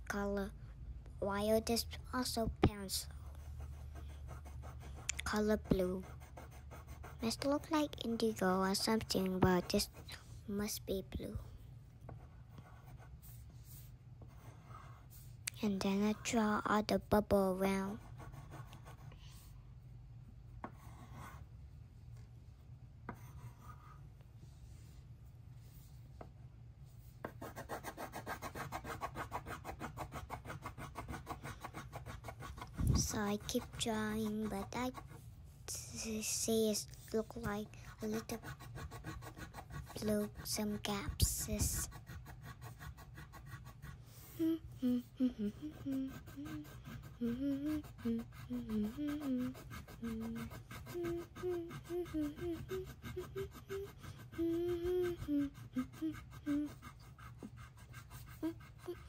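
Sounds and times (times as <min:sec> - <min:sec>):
pencil scratching on paper: 0:01.6 - 0:11.5, 0:12.1 - 0:19.6, 0:20.6 - 0:21.5, 0:23.1 - 0:24.1, 0:27.0 - 0:59.0
child humming: 0:44.2 - 0:57.0, 0:58.3 - 0:59.0.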